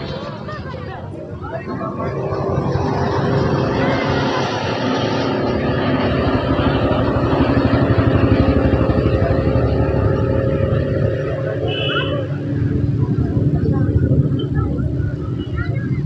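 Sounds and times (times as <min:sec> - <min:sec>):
outboard motor running at speed: 0:02.1 - 0:15.5.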